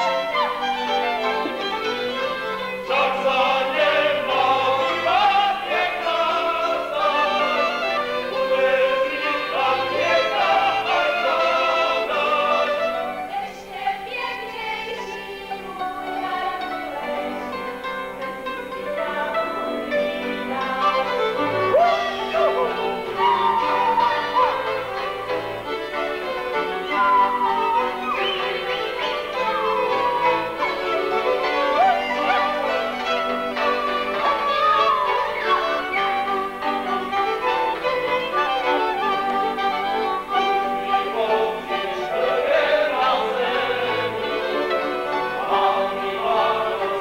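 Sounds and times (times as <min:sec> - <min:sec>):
fiddles and string band: 0:00.0 - 0:47.0
voices singing folk music: 0:00.0 - 0:47.0.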